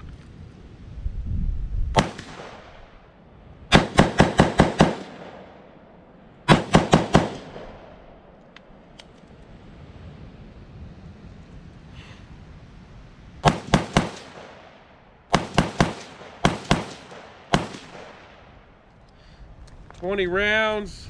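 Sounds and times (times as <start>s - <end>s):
rifle shots: 1.9s - 8.6s, 13.4s - 18.8s.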